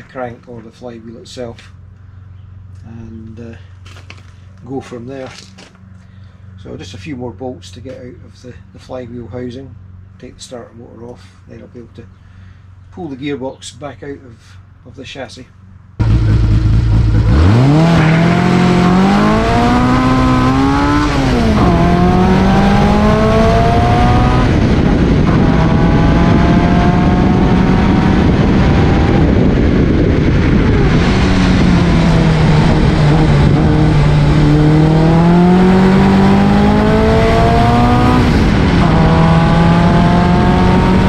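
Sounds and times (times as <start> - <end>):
racing car engine revving: 16.0 - 41.0.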